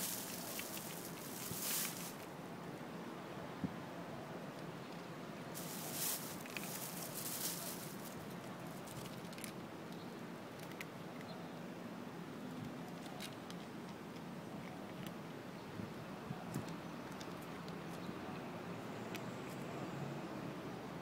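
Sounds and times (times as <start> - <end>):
cats chewing and lapping food: 0.0 - 2.3, 4.5 - 11.4, 12.4 - 15.4, 16.1 - 19.7.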